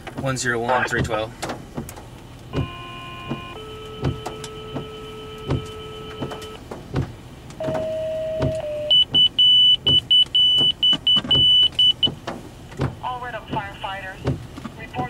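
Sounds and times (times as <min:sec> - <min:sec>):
paging tones over a radio: 0:02.6 - 0:06.6, 0:07.6 - 0:12.1
rapid high alert beeps: 0:07.8 - 0:12.1.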